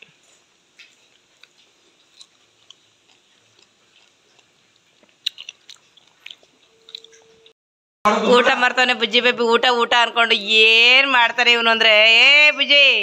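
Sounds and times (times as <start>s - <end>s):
chewing soft wet fruit: 0.0s - 7.6s.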